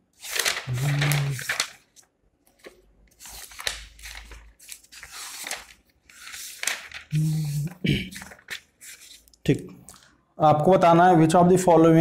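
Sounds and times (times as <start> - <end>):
paper rustling: 0.1 - 9.4.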